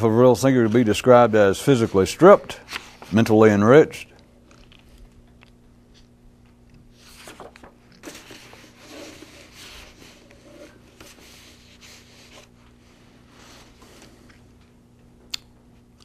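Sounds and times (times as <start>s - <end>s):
low electrical hum: 0.0s - 16.0s
paper rustling: 0.6s - 3.3s, 7.0s - 12.6s.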